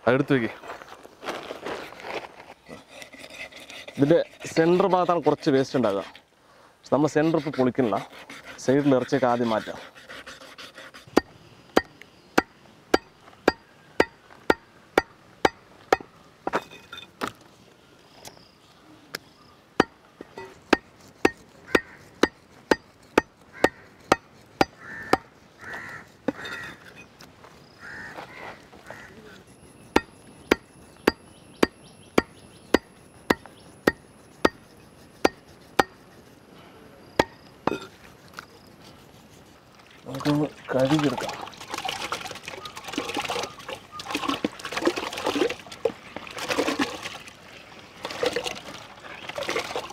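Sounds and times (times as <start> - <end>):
knife chopping meat: 20.7 - 25.3.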